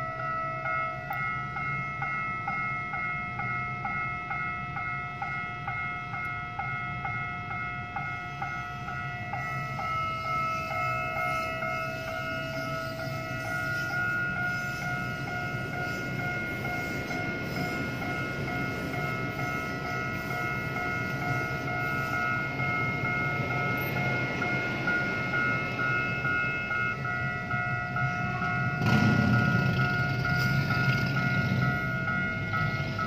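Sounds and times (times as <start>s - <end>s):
level crossing alarm pulsing tone: 0.0s - 33.0s
train rumbling past: 0.0s - 33.0s
traffic moving off: 28.5s - 33.0s.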